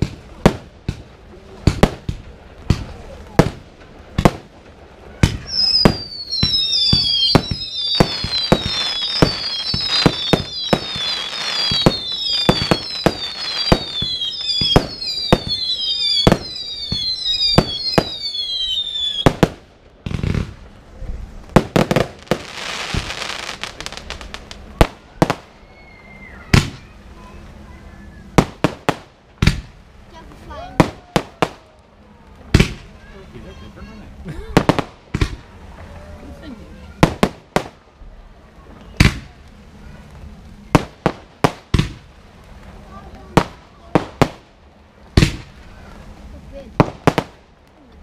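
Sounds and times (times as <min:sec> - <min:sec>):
firework bangs: 0:00.0 - 0:47.6
hissing bursts: 0:05.1 - 0:20.6
firework whistles falling in pitch: 0:05.3 - 0:19.4, 0:25.2 - 0:27.0.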